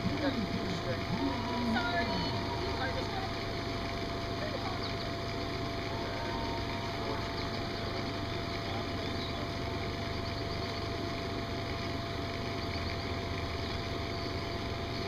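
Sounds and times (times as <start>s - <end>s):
motor droning: 0.0s - 15.0s
thin high tone: 0.6s - 9.7s.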